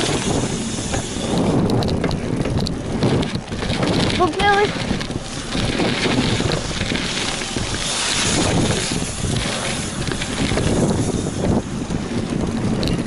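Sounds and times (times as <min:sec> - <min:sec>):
wheels rolling over dirt: 0:00.0 - 0:13.0
wind on microphone: 0:00.0 - 0:13.0.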